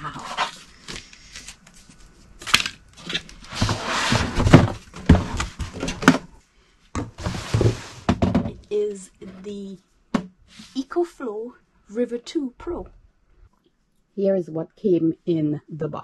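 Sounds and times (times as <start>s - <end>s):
cardboard and packing rustling: 0.0s - 6.4s, 7.0s - 8.4s
sharp knocks and thumps: 7.0s - 8.6s.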